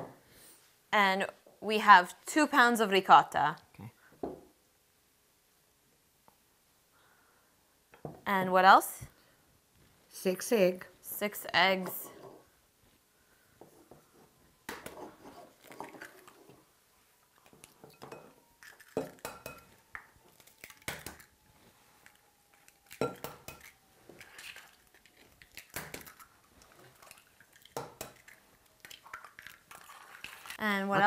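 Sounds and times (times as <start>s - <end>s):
eggs cracking against bowl: 17.4s - 21.3s, 22.0s - 30.6s
bowl and utensils clinking: 17.7s - 19.8s, 22.9s - 24.7s.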